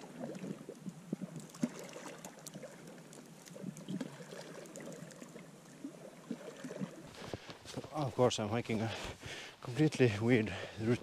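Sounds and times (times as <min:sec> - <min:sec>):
footsteps crunching through snow: 0:07.1 - 0:09.9.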